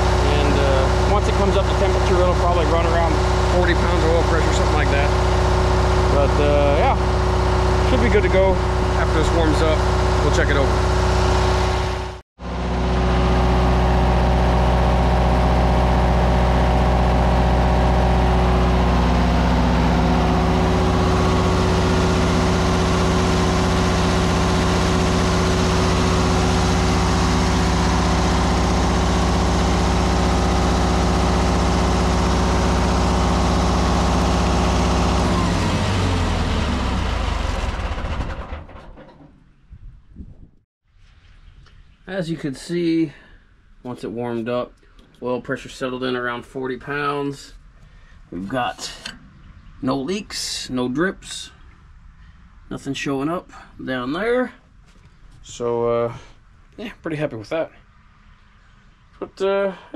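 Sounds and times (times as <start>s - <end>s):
generator winding down: 0.0s - 39.2s
diesel generator running: 0.0s - 39.6s, 42.6s - 56.6s.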